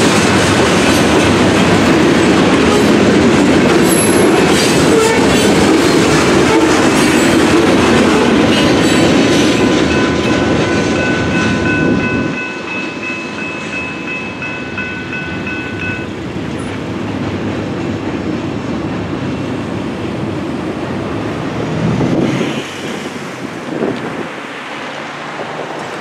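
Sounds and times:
cars rumbling over crossing: 0.0 - 26.0
railroad crossing bells ringing: 8.5 - 16.9.

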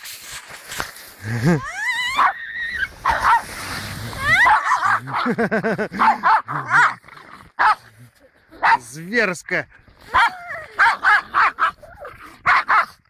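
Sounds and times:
dog squealing: 1.6 - 3.4, 4.2 - 5.0
dog barking and yipping: 2.1 - 3.5, 4.2 - 5.4, 6.0 - 6.9, 7.6 - 7.8, 8.6 - 8.9, 10.1 - 13.0.

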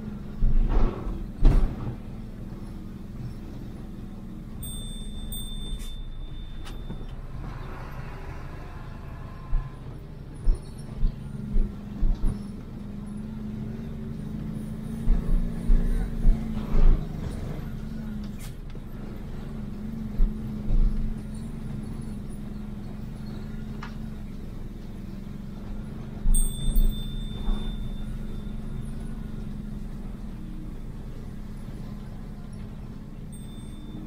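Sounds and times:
rumbling road noise: 0.0 - 34.0
vehicle engine running: 0.0 - 34.0
high steady tone: 4.6 - 7.4, 33.2 - 34.0.

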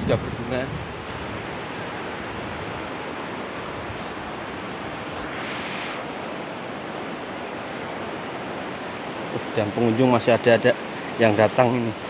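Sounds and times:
sea surf: 0.0 - 12.0
breeze: 2.9 - 9.4.

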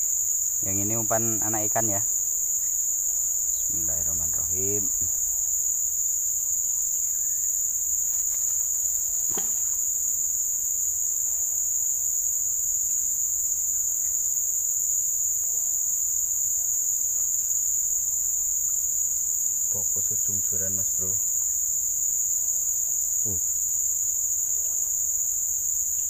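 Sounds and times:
high-pitched insect chorus: 0.0 - 26.0
soft knock: 9.3 - 9.7.

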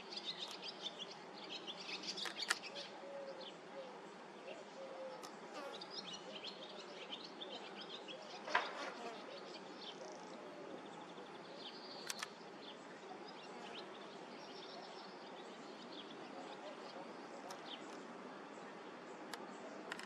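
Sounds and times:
outdoor background hiss: 0.0 - 20.0
small birds chirping: 0.0 - 20.0
quick clicks: 12.0 - 12.4, 19.3 - 20.0.

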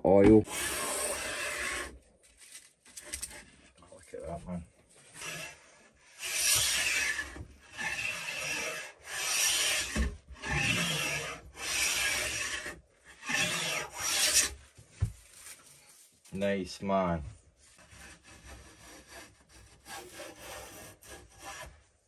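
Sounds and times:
hand plane strokes on wood: 0.4 - 2.0, 5.0 - 14.6, 17.7 - 21.9.

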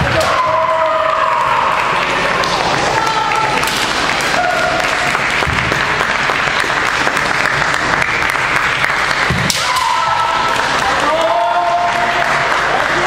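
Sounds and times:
long drawn-out shouts: 0.0 - 2.0, 9.6 - 12.3
spectators clapping: 0.0 - 13.0.

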